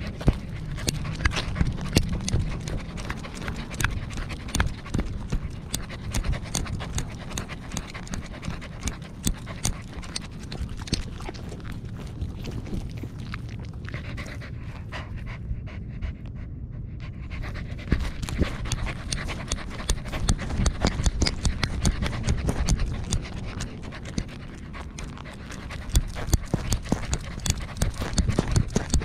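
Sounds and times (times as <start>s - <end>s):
rapid clicking and knocking: 0.0s - 11.2s, 17.9s - 24.4s, 25.0s - 29.0s
dog panting: 0.0s - 29.0s
steady low rumble: 0.0s - 29.0s.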